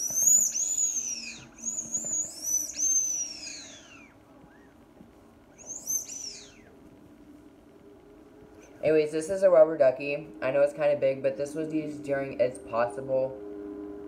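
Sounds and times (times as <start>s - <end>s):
rubber duck squeaking: 0.0s - 4.1s, 5.6s - 6.7s.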